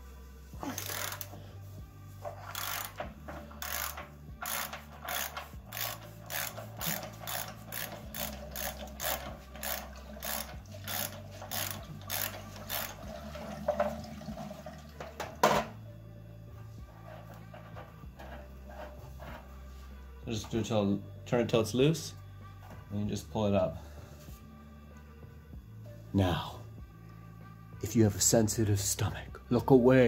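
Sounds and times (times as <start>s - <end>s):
ratchet wrench clicking: 0.7s - 1.4s, 2.3s - 13.1s.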